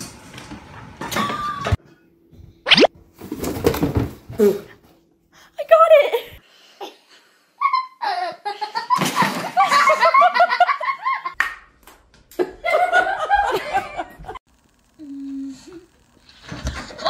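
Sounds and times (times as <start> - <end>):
people laughing: 7.7 - 11.4, 12.4 - 14.4.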